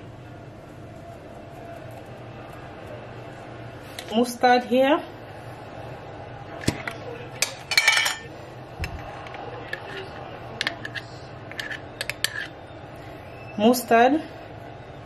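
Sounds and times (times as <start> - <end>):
glass jar and spoon clinking: 7.4 - 8.3.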